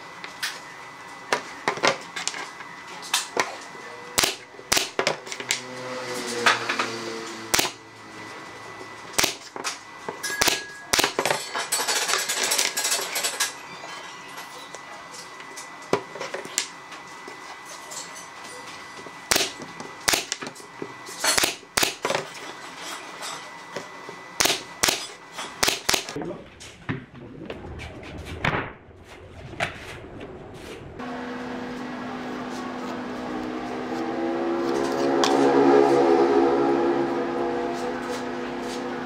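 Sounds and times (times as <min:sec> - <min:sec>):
nail gun firing: 0:04.2 - 0:05.2, 0:07.5 - 0:07.8, 0:09.2 - 0:09.5, 0:10.4 - 0:11.3, 0:19.3 - 0:20.5, 0:21.3 - 0:22.1, 0:24.4 - 0:26.2.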